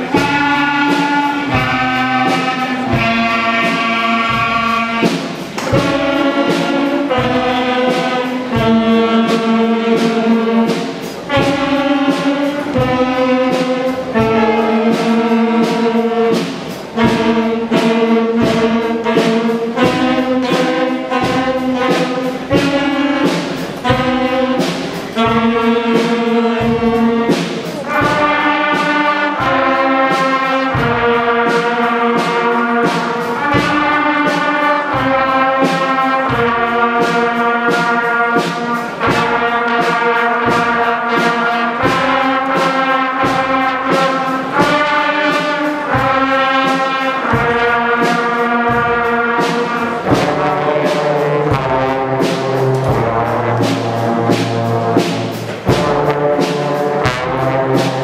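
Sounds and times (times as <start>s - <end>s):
concert band playing chords: 0.0s - 58.0s
drum strikes: 0.0s - 58.0s.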